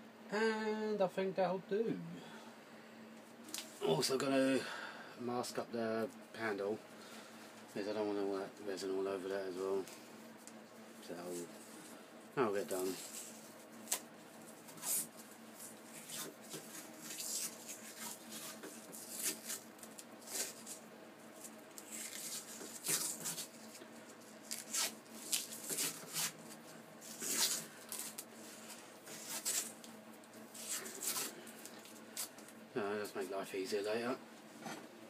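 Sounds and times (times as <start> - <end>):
tape peeling off roll: 12.7 - 20.8, 21.4 - 23.8, 24.4 - 29.9.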